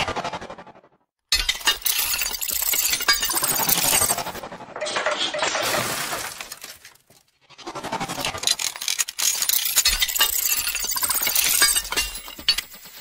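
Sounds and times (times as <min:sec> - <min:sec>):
breaking tinkling glass: 0:01.3 - 0:04.4, 0:08.5 - 0:13.0
glass crash: 0:01.3 - 0:04.4, 0:05.3 - 0:07.2, 0:08.7 - 0:13.0.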